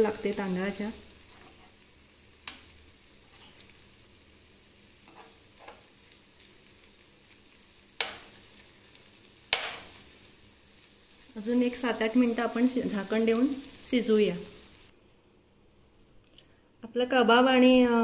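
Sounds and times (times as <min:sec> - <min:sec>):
food sizzling in a frying pan: 0:00.0 - 0:15.0
spoon tapping a pan: 0:08.0 - 0:08.3, 0:09.5 - 0:09.9.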